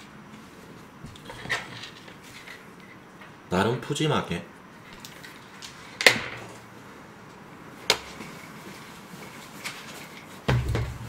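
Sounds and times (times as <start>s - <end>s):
dull thump: 10.5s - 11.0s
sharp knocks: 10.5s - 11.0s.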